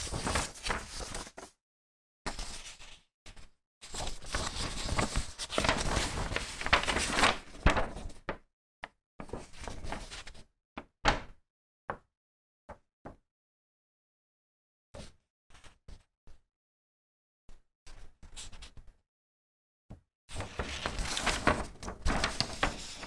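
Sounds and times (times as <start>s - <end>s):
paper rustling and crinkling: 0.0s - 1.5s, 2.3s - 8.3s, 9.2s - 10.4s, 20.3s - 23.0s.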